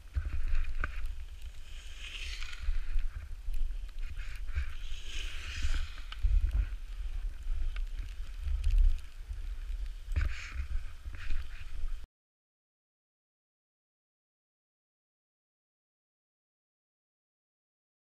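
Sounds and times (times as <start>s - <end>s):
skis sliding over snow: 0.0s - 12.0s
wind buffeting microphone: 0.0s - 12.0s.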